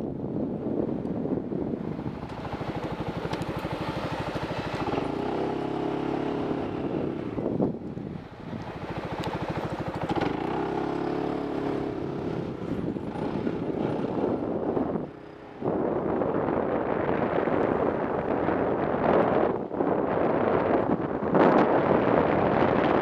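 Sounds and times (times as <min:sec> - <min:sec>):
wind rushing over microphone: 0:00.0 - 0:23.0
motorcycle engine accelerating: 0:01.3 - 0:18.6.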